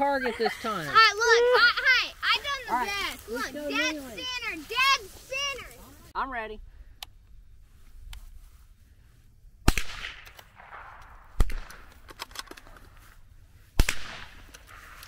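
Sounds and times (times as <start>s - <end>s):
rifle shots with echo: 9.7s - 11.9s, 13.8s - 14.4s.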